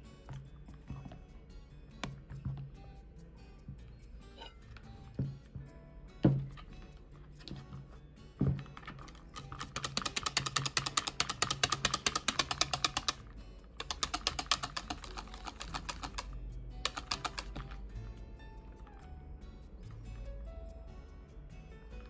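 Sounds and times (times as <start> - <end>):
whisk clicking against bowl: 9.0 - 17.7.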